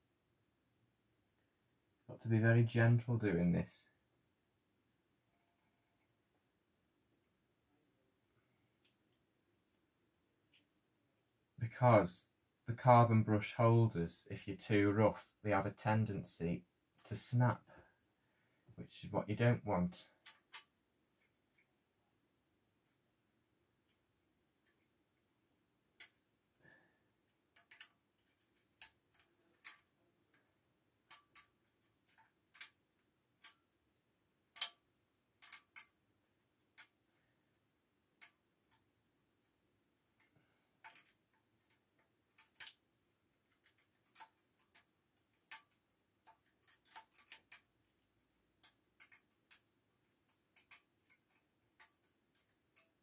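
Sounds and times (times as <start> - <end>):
small tool clicking on plastic: 20.2 - 21.7, 27.5 - 33.7, 34.5 - 37.3, 38.2 - 42.8, 43.4 - 47.7, 48.6 - 53.0.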